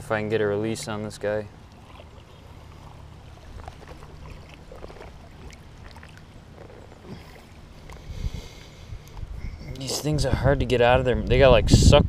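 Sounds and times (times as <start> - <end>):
river water splashing and trickling: 0.0 - 11.2
steady low rumble: 0.0 - 12.0
small scattered splashes and ticks: 1.5 - 9.3.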